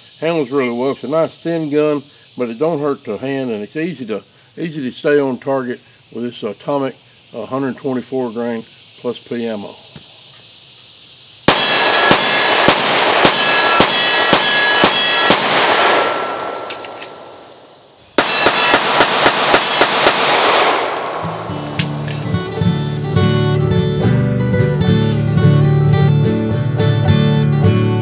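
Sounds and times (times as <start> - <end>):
pistol shots: 11.5 - 17.6, 18.2 - 22.2
guitar music: 21.1 - 28.0.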